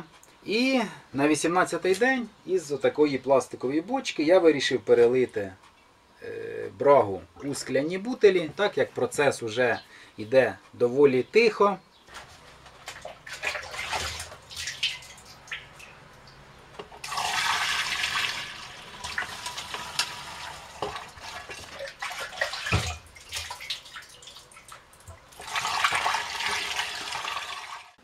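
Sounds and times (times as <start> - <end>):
liquid pouring and splashing: 12.8 - 28.0
plastic jug clicks and knocks: 22.7 - 23.0.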